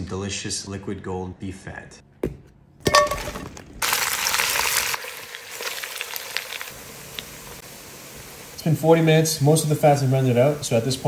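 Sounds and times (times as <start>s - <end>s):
fat sizzling and crackling: 3.2s - 11.0s.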